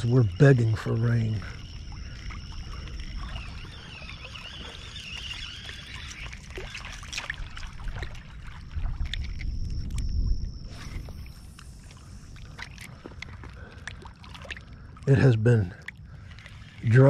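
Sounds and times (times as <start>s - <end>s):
high-pitched insect buzz: 0.0s - 8.3s, 9.1s - 12.4s
water lapping around boat: 0.0s - 17.0s.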